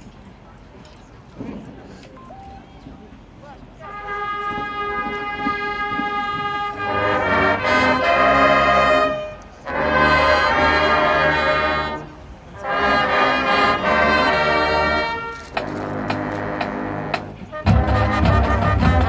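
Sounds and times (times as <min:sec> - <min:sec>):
brass band playing chords: 0:03.8 - 0:19.0.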